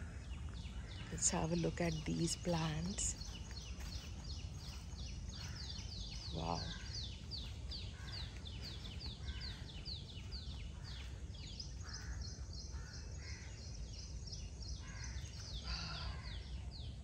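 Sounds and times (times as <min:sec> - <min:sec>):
harsh lower bird calls: 0:00.0 - 0:16.8
birds chirping: 0:00.0 - 0:17.0.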